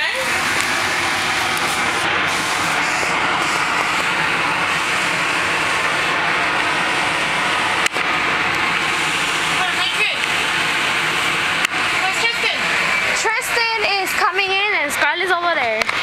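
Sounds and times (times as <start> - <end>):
electric blower rushing air: 0.0 - 15.1.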